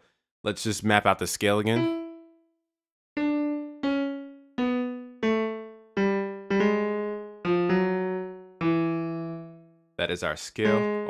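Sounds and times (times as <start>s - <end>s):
piano single notes: 1.7s - 2.4s, 3.2s - 9.8s, 10.6s - 11.0s.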